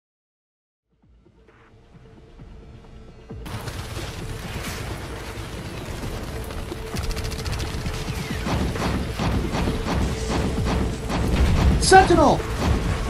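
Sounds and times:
crashes and impacts: 0:03.4 - 0:13.0
gunfire volleys: 0:03.5 - 0:13.0.

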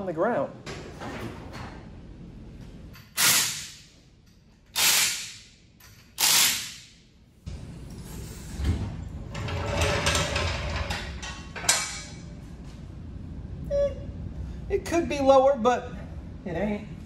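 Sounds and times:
impact wrench bursts: 0:03.0 - 0:03.9, 0:04.7 - 0:07.0
low steady rumbling: 0:08.8 - 0:17.0.

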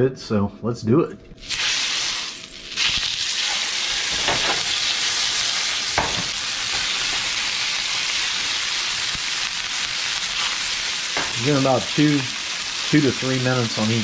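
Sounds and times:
fish fillets sizzling in oil: 0:01.4 - 0:14.0
light knocks in pan: 0:06.0 - 0:06.3.

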